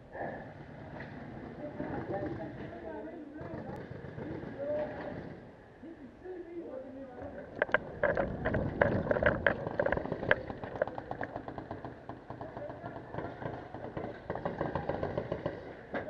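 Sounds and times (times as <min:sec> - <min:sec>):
footsteps and rattling gear: 0:07.6 - 0:15.7.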